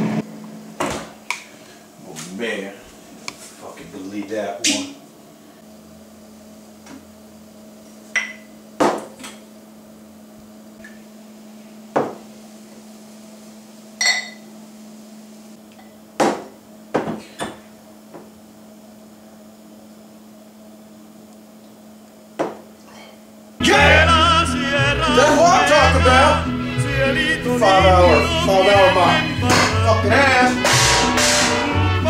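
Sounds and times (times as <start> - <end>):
glasses knocking and clinking: 14.0 - 14.4.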